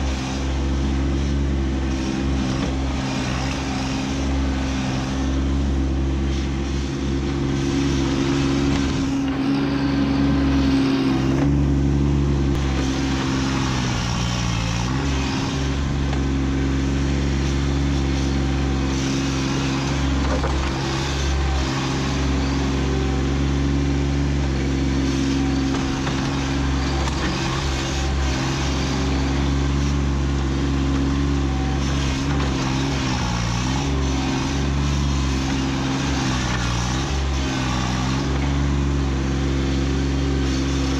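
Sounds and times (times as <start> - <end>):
diesel tractor engine running: 0.0 - 40.9.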